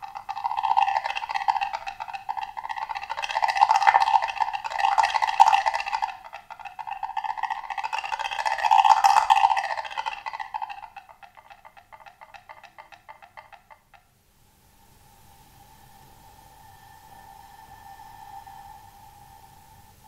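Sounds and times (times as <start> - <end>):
woodblock played with mallets: 0.0 - 14.1.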